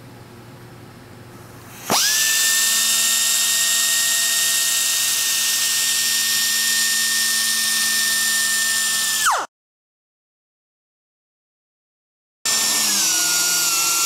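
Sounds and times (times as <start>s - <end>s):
air sander whining: 1.7s - 9.5s, 12.5s - 14.0s.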